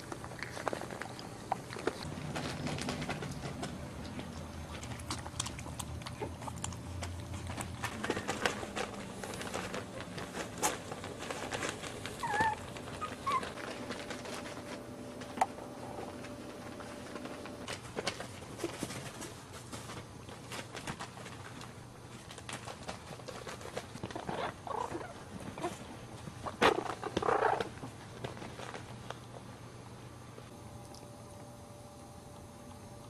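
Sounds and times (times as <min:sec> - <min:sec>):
puppy squeaks: 0:12.2 - 0:13.6.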